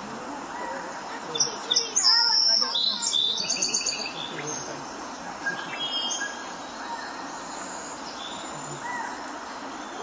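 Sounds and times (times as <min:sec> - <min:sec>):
outdoor ambience hiss: 0:00.0 - 0:10.0
faint bird chirps: 0:00.5 - 0:10.0.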